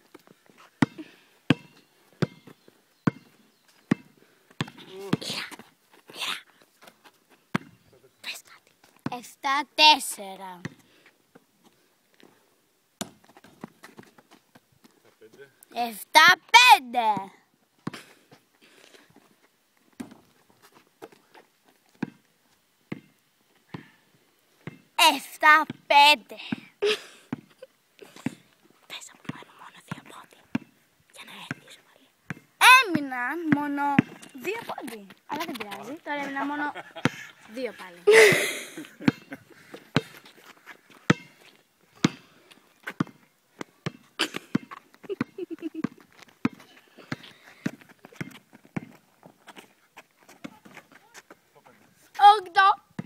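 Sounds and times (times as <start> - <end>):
basketball bouncing on asphalt: 0.1 - 5.6, 7.5 - 7.8, 10.6 - 10.8, 13.0 - 14.4, 20.0 - 20.3, 22.0 - 22.3, 22.9 - 23.1, 24.6 - 24.9, 25.6 - 25.9, 27.3 - 27.5, 29.2 - 30.8, 31.5 - 31.7, 32.3 - 37.9, 39.0 - 49.6, 50.3 - 51.2.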